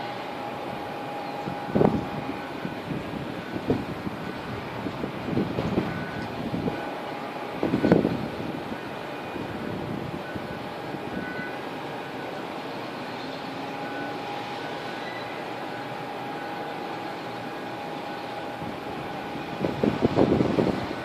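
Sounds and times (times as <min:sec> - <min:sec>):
distant traffic: 0:00.0 - 0:21.0
faint steady tones: 0:00.0 - 0:21.0
wind buffeting microphone: 0:00.8 - 0:11.4, 0:18.4 - 0:21.0.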